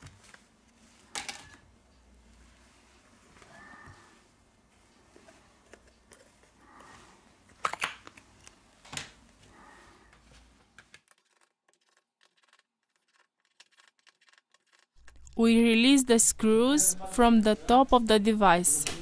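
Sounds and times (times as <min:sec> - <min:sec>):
soft rustle of handling: 0:02.0 - 0:07.3.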